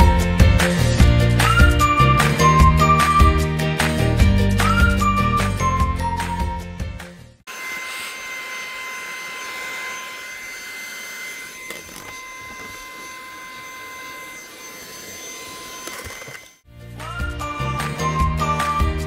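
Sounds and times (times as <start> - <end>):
steam cleaner hissing and whining: 7.5 - 16.5.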